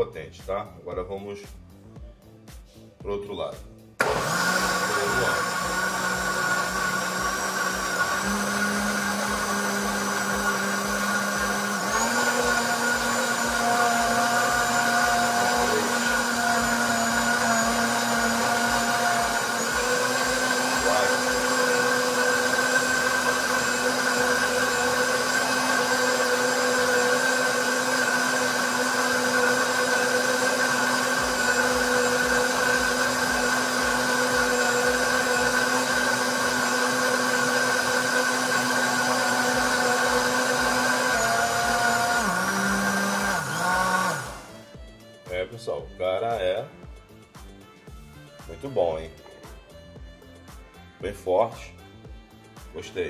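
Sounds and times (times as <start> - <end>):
blender motor winding down: 4.0 - 44.9
blender running: 4.0 - 45.1.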